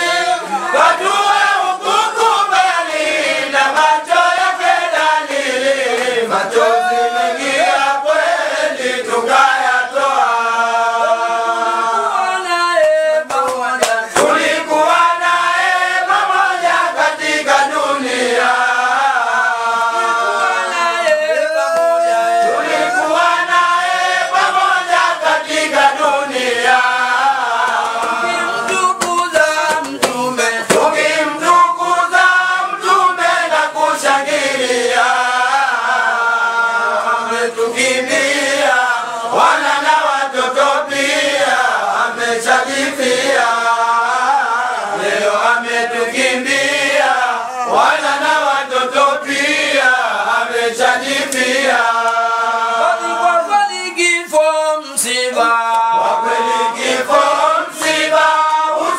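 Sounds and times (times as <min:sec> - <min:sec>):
group of men chanting: 0:00.0 - 0:58.9.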